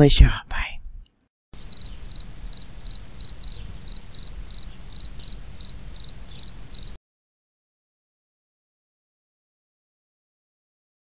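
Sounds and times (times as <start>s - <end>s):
cricket chirping: 1.6s - 7.0s.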